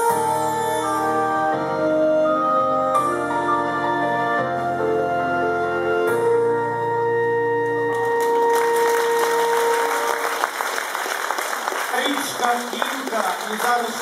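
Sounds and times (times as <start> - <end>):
audience applause: 7.9 - 14.0.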